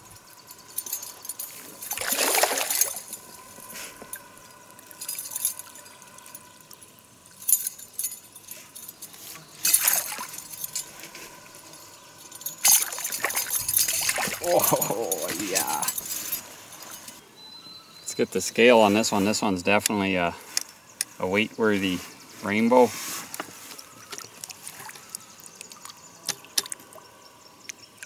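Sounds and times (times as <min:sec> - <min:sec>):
fish splashing in water: 0:01.9 - 0:03.0, 0:24.0 - 0:27.0.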